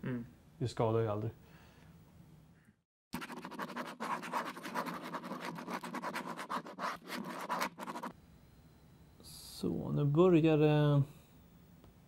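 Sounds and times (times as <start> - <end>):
pen scratching on paper: 3.2 - 8.1.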